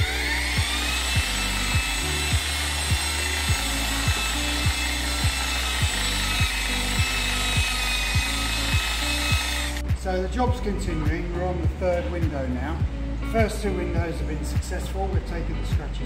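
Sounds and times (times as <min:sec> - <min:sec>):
machine polisher whining: 0:00.0 - 0:09.9
background music with beat: 0:00.0 - 0:16.0.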